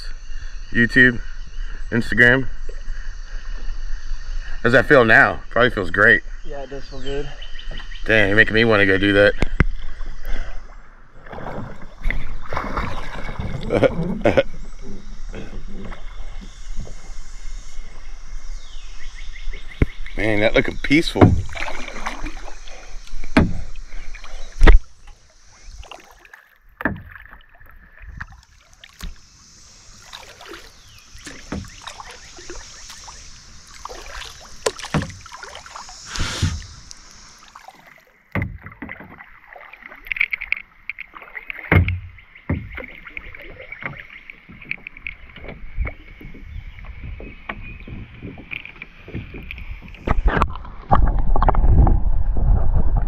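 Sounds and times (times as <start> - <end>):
paddle splashing: 9.4 - 52.9
knocks against kayak hull: 21.2 - 22.3, 23.2 - 23.8, 26.8 - 27.3, 31.2 - 32.1, 34.6 - 35.3, 38.3 - 39.3, 41.6 - 43.1.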